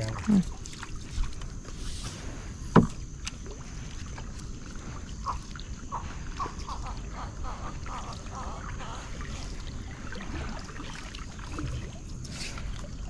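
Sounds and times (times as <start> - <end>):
water washing along canoe hull: 0.0 - 13.0
knocks on canoe: 2.7 - 3.0.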